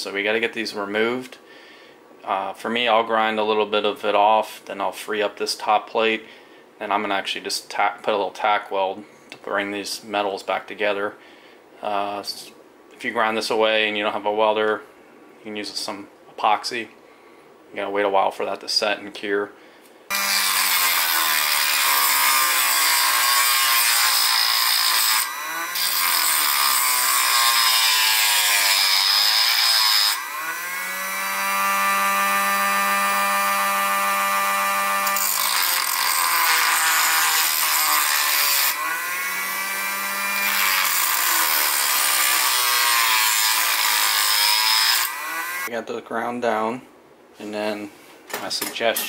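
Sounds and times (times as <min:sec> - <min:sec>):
rotary tool grinding metal: 0:20.1 - 0:45.7.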